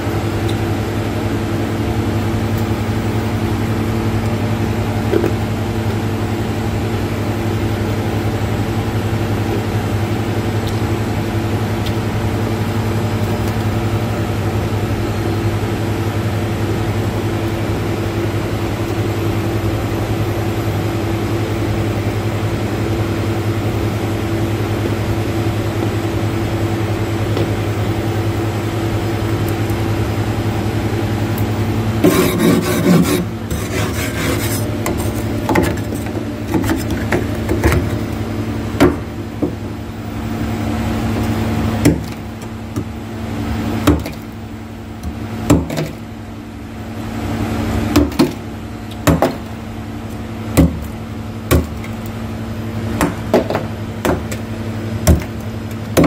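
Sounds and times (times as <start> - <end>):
steady low hum: 0.0 - 56.0
frost scraping: 32.0 - 37.1.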